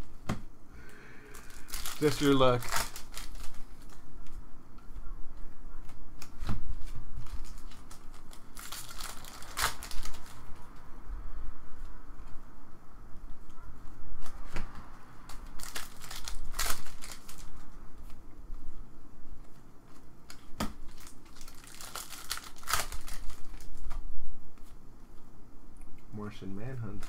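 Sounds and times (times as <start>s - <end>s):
foil wrapper crinkling: 1.2s - 4.4s, 5.9s - 10.7s, 15.4s - 18.2s, 19.5s - 24.0s
cards shuffled by hand: 1.3s - 4.4s, 5.8s - 10.8s, 14.2s - 18.8s, 19.4s - 24.8s.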